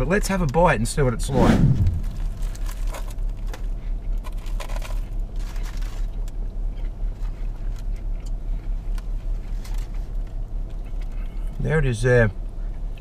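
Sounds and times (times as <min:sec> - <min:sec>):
paper wrapper rustling: 0:02.0 - 0:03.6, 0:04.2 - 0:06.1
people chewing crispy food: 0:02.3 - 0:11.6.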